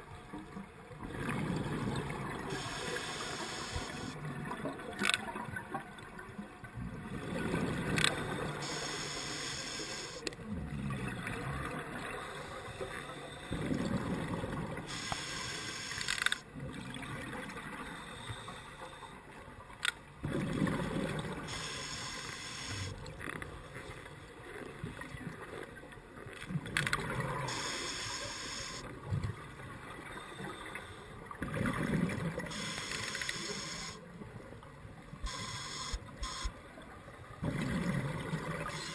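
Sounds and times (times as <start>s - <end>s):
regulator inhalation hiss: 2.5s - 4.2s, 8.6s - 10.2s, 14.9s - 16.4s, 21.5s - 23.0s, 27.5s - 28.8s, 32.5s - 34.0s, 35.3s - 36.5s
sharp clicks: 15.9s - 16.4s, 32.6s - 33.9s
exhaled air bubbling: 37.4s - 38.9s.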